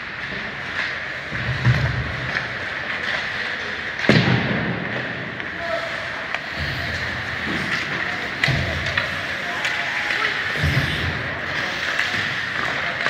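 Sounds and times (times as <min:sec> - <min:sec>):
hockey puck crack: 0:00.0 - 0:13.0
rink noise: 0:05.5 - 0:13.0.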